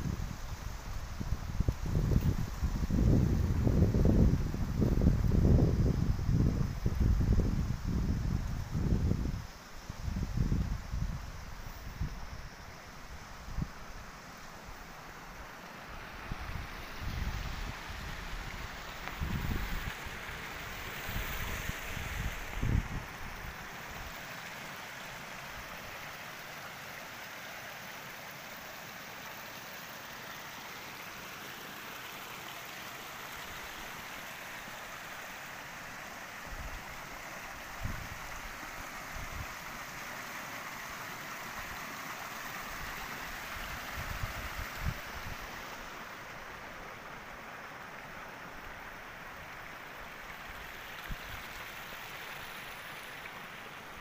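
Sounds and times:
water rushing through channels: 0.0s - 54.0s.

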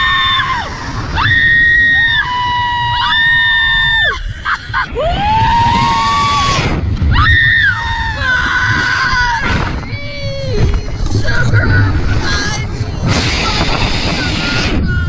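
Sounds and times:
women screaming: 0.0s - 9.5s
steady low rumble: 0.0s - 15.0s.

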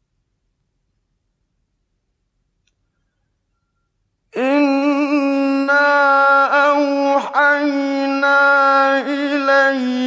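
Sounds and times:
man chanting melodic recitation: 4.4s - 10.0s.

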